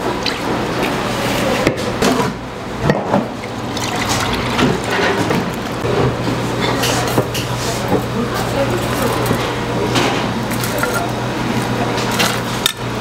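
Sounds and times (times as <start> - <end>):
liquid pouring into bowls: 3.2 - 5.8.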